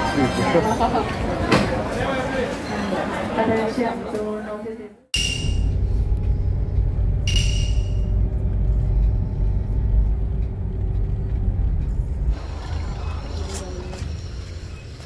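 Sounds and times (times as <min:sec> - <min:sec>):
car road and engine rumble: 0:05.4 - 0:15.0.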